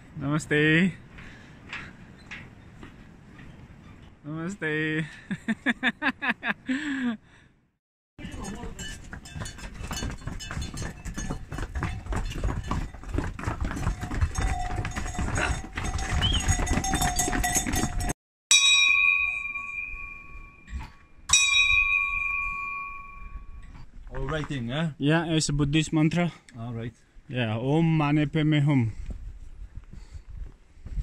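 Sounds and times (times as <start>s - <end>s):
livestock neck bells jangling: 8.2s - 23.9s
single clear bell ringing: 16.5s - 23.7s.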